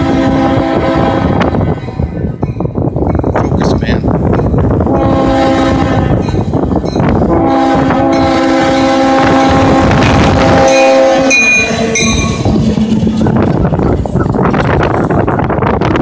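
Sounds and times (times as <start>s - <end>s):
locomotive air horn blasts: 0.0s - 1.7s, 4.9s - 6.4s, 7.2s - 13.4s
locomotive engine and wheels rumbling: 0.0s - 16.0s.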